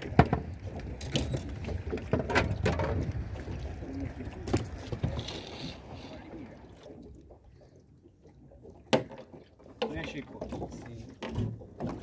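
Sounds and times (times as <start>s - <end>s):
wind and water rumble: 0.0s - 12.0s.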